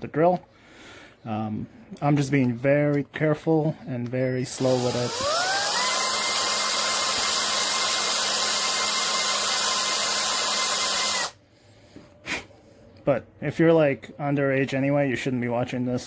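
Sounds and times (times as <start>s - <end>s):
cordless drill drilling into metal: 4.5s - 11.4s.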